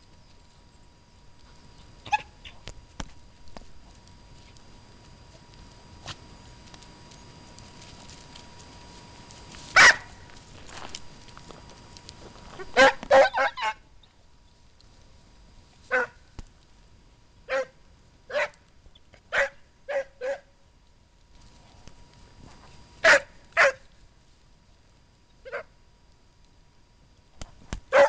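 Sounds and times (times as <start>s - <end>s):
hound baying: 1.5s - 2.7s, 9.7s - 10.4s, 12.5s - 13.9s, 15.9s - 16.2s, 19.3s - 20.5s, 23.0s - 23.9s, 25.4s - 25.7s.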